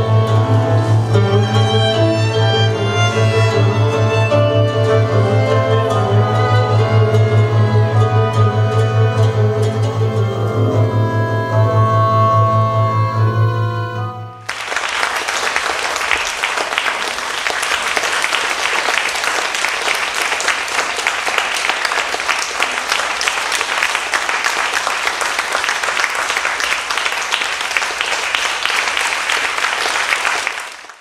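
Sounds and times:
audience applauding: 0:14.4 - 0:31.0.

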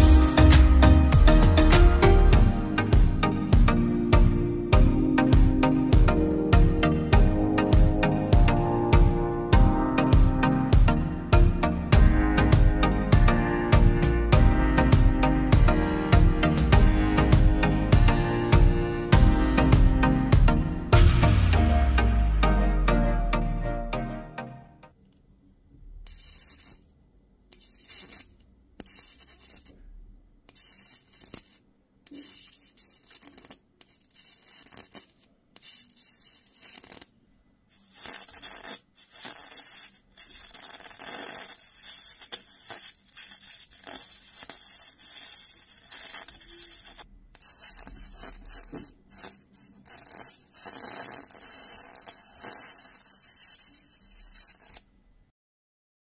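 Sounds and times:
electric arc crackling and sizzling: 0:37.9 - 0:54.8.

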